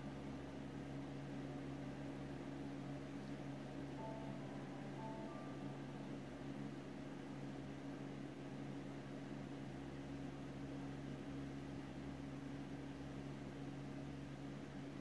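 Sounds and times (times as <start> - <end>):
room noise hiss: 0.0 - 15.0
low hum: 3.0 - 7.7.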